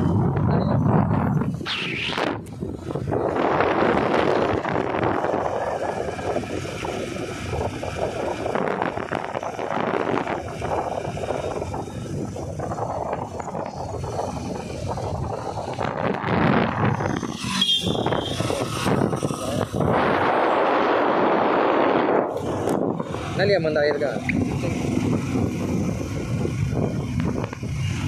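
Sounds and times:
wind buffeting microphone: 0.0s - 28.0s
motorcycle engine running: 2.4s - 28.0s.

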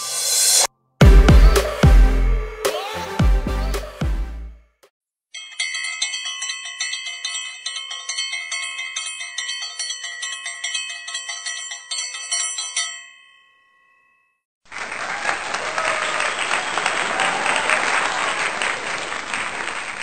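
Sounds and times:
applause: 14.7s - 20.0s.

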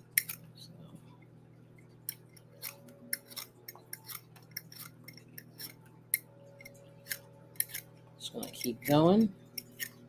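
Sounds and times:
vegetable peeler scraping potato: 2.4s - 5.8s, 6.6s - 10.0s.

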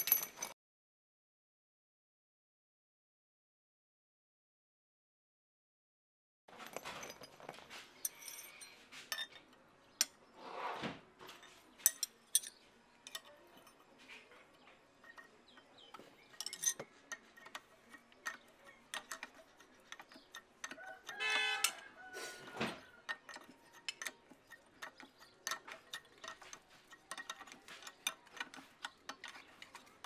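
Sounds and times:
spanner clinking on metal nuts: 0.0s - 0.5s, 6.6s - 10.1s, 11.3s - 14.1s, 15.0s - 30.0s.

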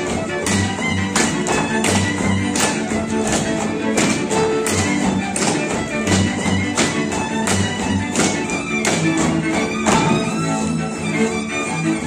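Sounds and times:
folk dance music on fiddle and bass: 0.0s - 12.0s.

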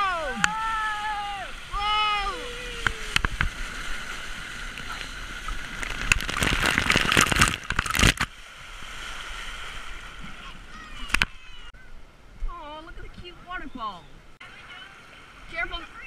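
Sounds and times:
loud splashing: 0.0s - 11.7s
water rushing down a slide: 0.0s - 11.7s.

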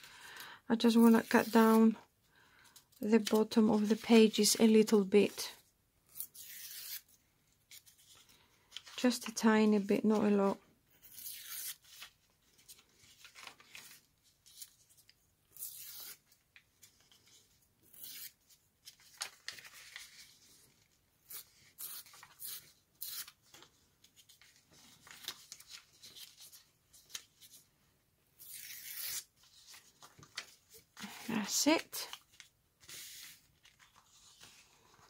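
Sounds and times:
paper tearing: 6.1s - 7.1s, 11.0s - 12.1s, 15.5s - 16.2s, 17.9s - 18.4s, 21.2s - 23.4s, 28.4s - 29.6s
paper rustling: 11.8s - 14.8s, 18.8s - 27.6s, 29.0s - 35.0s.

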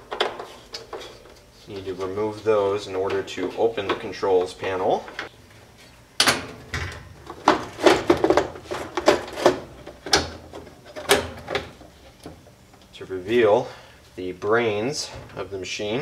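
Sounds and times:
knocks clicks and rattles of panel: 6.2s - 12.4s.

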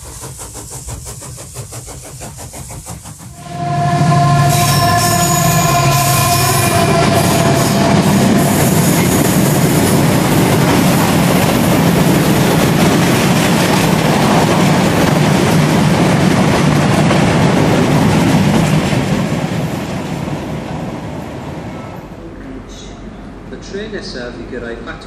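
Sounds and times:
freight train wheels rumbling: 0.0s - 25.0s.

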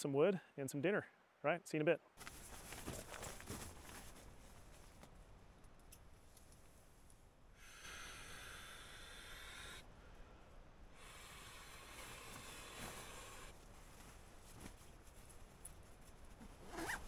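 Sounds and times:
man blowing into inflatable valve: 7.6s - 9.8s.

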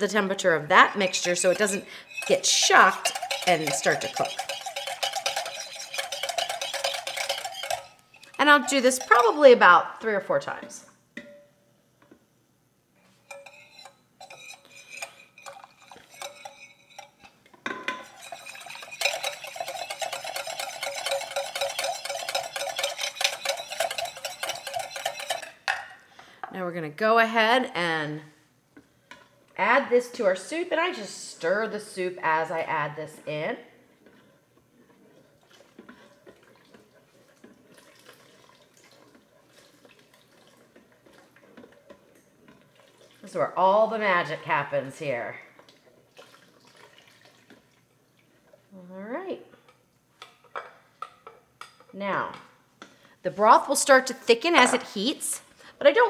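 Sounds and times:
whisk clicking against glass bowl: 1.0s - 9.4s, 13.3s - 17.3s, 18.0s - 25.6s
liquid sloshing and dripping: 34.0s - 43.3s, 45.6s - 48.7s.

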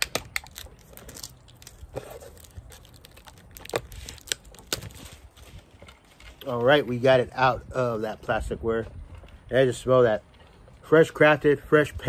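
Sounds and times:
plastic wrap crinkling and tearing: 0.0s - 6.0s.

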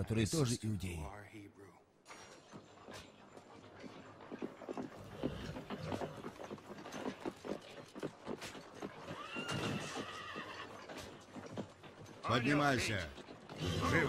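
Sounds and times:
horse hooves clip-clopping: 2.1s - 14.0s
horse whinnying: 8.8s - 11.7s, 13.5s - 14.0s.

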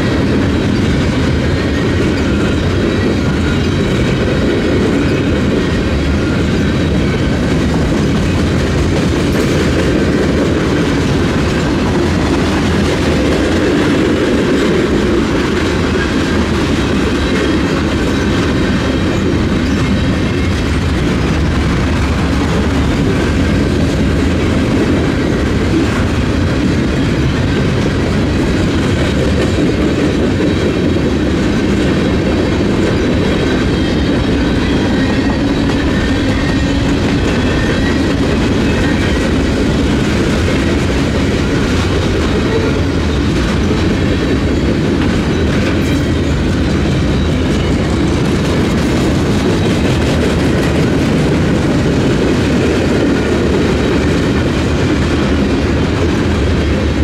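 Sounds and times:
freight train wheels rumbling: 0.0s - 57.0s.

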